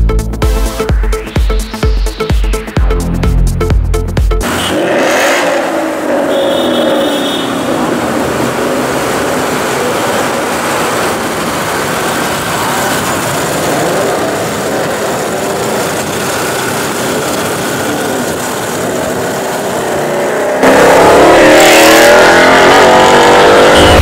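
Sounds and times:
car engine running: 5.9 - 21.3.

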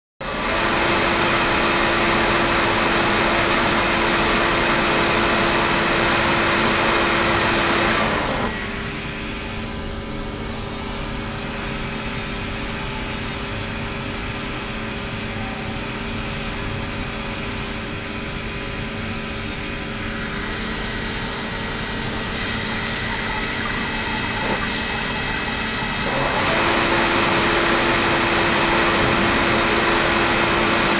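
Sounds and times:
steady hum: 17.6 - 30.9
water streaming from hose: 17.7 - 30.9.

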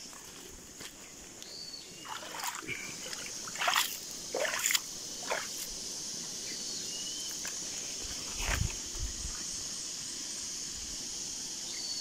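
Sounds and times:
steady high hiss: 0.0 - 12.0
water splashing in muddy pool: 2.0 - 5.6.

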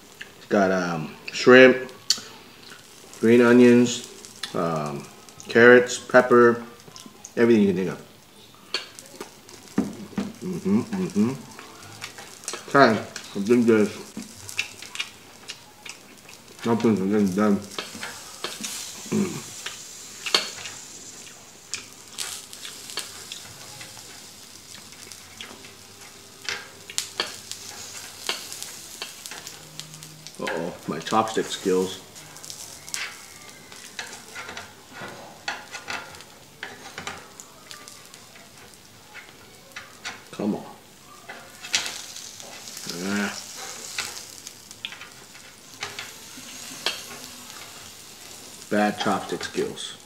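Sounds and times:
faint steady hiss: 0.0 - 50.0
chopsticks clicking and scraping: 8.7 - 9.4, 10.9 - 40.4, 41.2 - 49.7
person humming: 10.4 - 11.4, 19.1 - 19.4.

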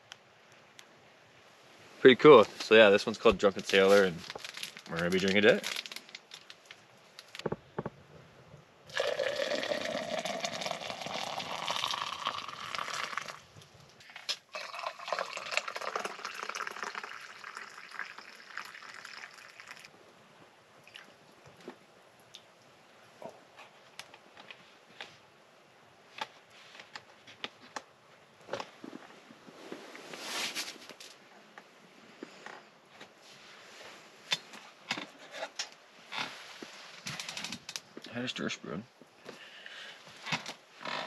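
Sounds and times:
coffee pouring into steel mug: 8.9 - 13.4, 14.1 - 19.9.

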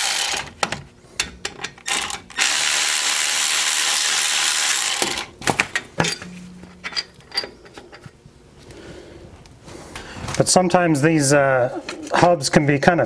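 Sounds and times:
cordless ratchet running: 0.0 - 0.5, 1.8 - 5.3
metal clinks: 6.0 - 8.1.

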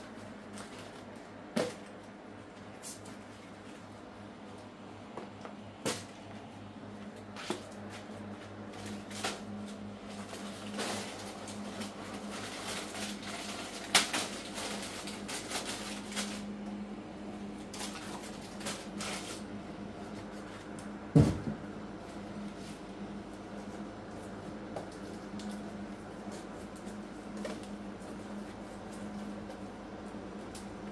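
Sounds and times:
cardboard and packets being handled: 0.0 - 3.9, 7.0 - 16.6, 17.7 - 19.6
steady low hum: 0.0 - 30.9.

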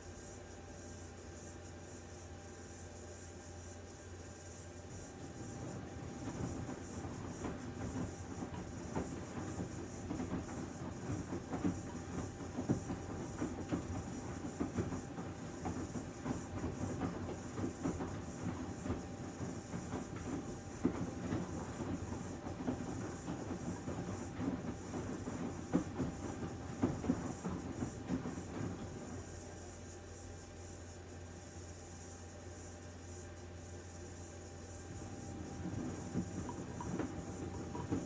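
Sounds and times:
steady hiss: 0.0 - 38.0
washing machine drum turning: 34.9 - 38.0.

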